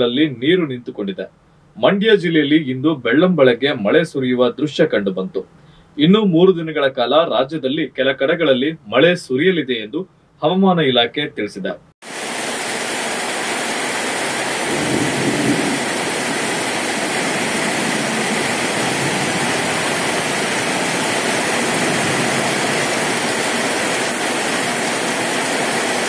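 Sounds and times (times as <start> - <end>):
heavy rain pouring: 12.0 - 26.0.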